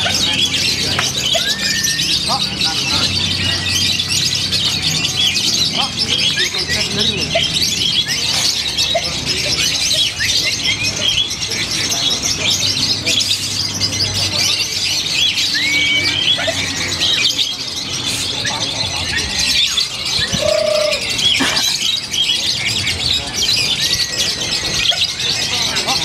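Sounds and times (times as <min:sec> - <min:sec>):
lovebird chirping and whistling: 0:00.0 - 0:09.1, 0:15.2 - 0:21.0
murmur of voices: 0:00.0 - 0:26.0.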